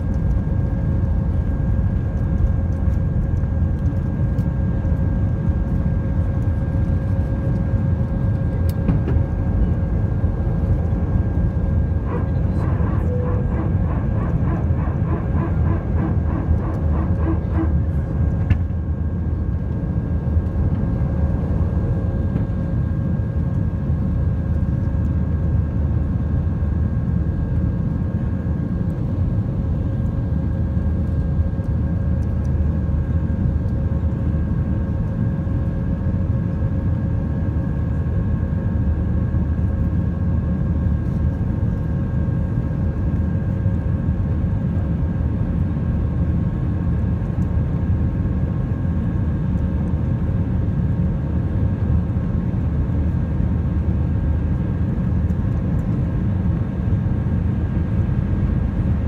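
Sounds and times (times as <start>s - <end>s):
jet engines rumbling in cabin: 0.0s - 59.0s
steady engine tones: 5.4s - 22.9s.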